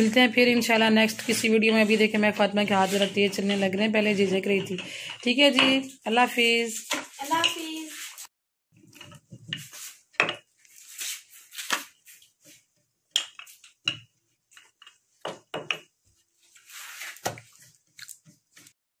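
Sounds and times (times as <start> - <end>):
rolling pin on dough: 0.0 - 8.3, 8.9 - 18.8
scraping rustle: 16.5 - 17.6.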